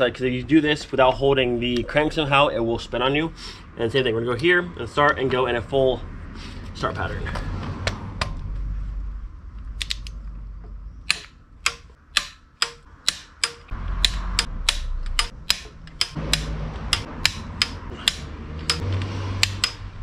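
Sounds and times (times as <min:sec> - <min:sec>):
torque wrench ratcheting clicks: 0:11.1 - 0:19.8.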